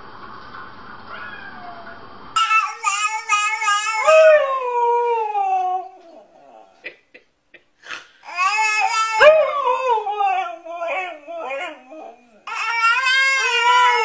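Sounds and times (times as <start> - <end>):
dog howling: 1.2 - 6.8, 8.4 - 14.0
baby squealing: 2.4 - 4.6, 8.2 - 14.0.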